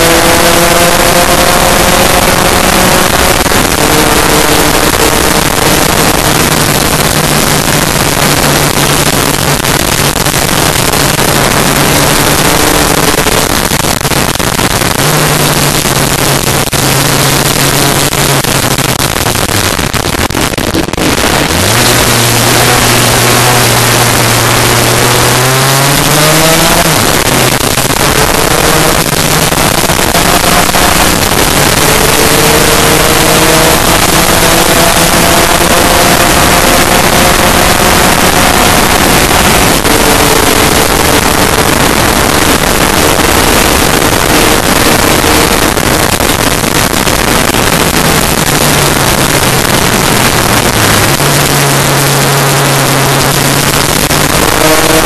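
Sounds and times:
scooter engine revving: 0.0s - 55.0s
wind rush over microphone: 0.0s - 55.0s.

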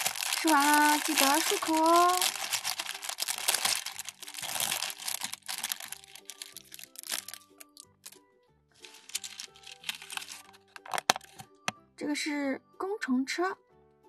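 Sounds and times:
plastic toy pieces clicking: 0.0s - 7.8s, 8.9s - 11.4s
plastic bag crinkling: 0.0s - 8.2s, 8.8s - 11.5s
light background music: 0.0s - 14.0s.

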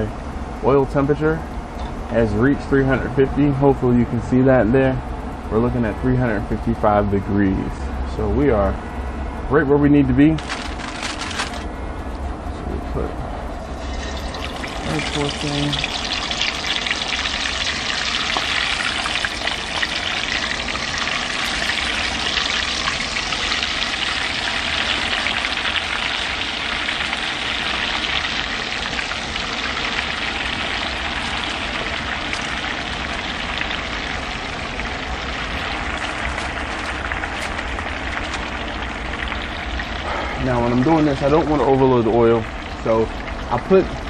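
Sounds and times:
chicken sizzling in oil: 13.7s - 44.0s.

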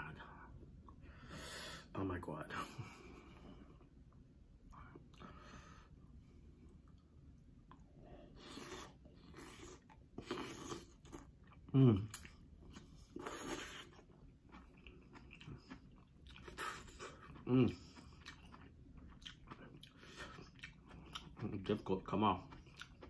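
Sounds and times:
chewing and wet mouth sounds: 6.5s - 23.0s.

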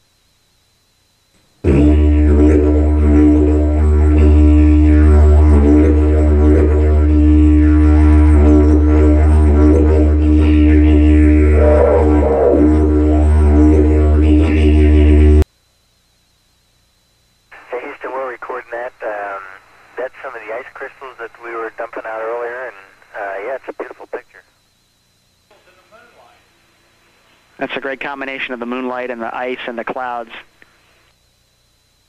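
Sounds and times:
loud low music drone: 1.6s - 15.4s.

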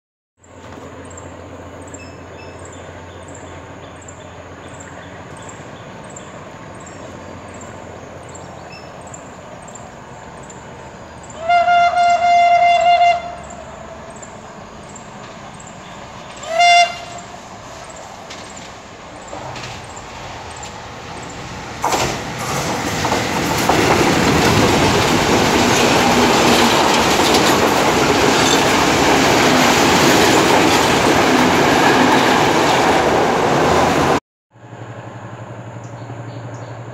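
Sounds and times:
train passing on rails: 0.4s - 36.9s
train horn: 11.2s - 13.9s, 16.3s - 17.4s.

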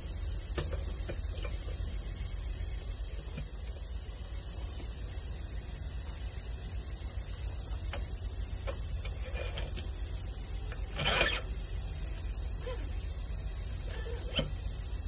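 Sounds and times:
low background rumble: 0.0s - 15.0s
short scraping rattle: 8.7s - 10.0s, 10.6s - 11.6s.

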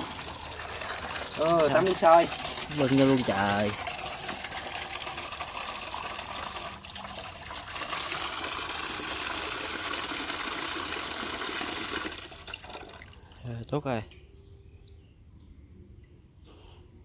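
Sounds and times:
tap water pouring into metal basin: 0.0s - 14.0s.

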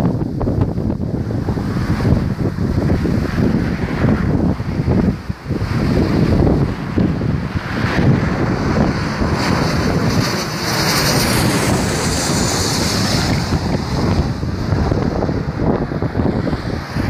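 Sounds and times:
jet airliner passing overhead: 0.0s - 17.0s
wind buffeting microphone: 0.0s - 17.0s.

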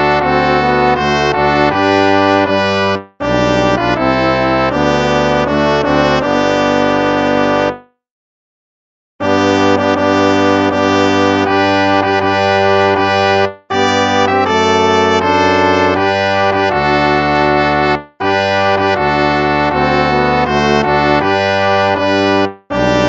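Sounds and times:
brass playing slow hymn chords: 9.2s - 23.0s.

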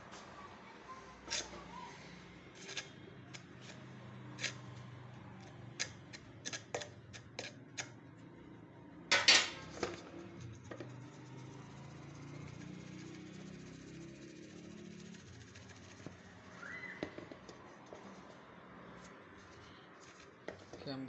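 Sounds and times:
metallic clatter: 9.1s - 11.0s.

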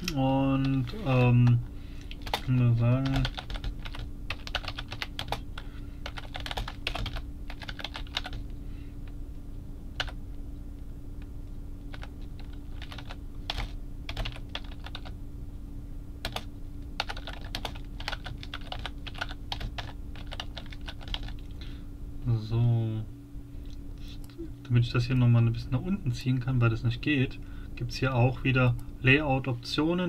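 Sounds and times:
typing on computer keyboard: 2.1s - 5.4s, 6.0s - 8.4s, 11.9s - 15.1s, 16.2s - 21.4s.

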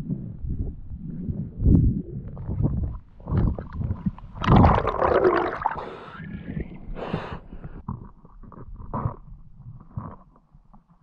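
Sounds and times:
muffled underwater water rushing: 0.0s - 7.8s.

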